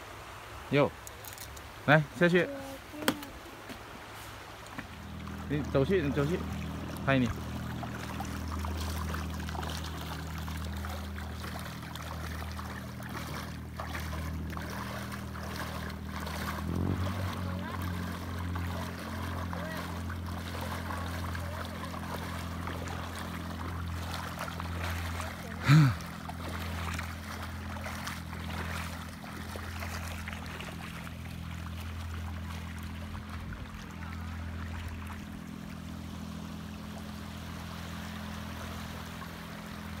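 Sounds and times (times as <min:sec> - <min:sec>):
low motor-like hum: 0:00.0 - 0:40.0
people wading through shallow water: 0:00.0 - 0:40.0
person crying out: 0:25.6 - 0:26.0.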